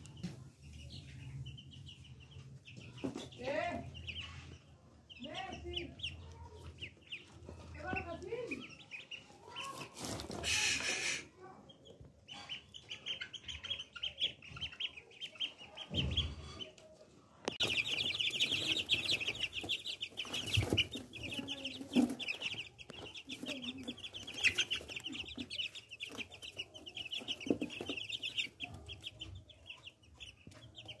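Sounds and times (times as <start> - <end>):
duckling peeping: 0.8 - 16.8, 17.4 - 31.0.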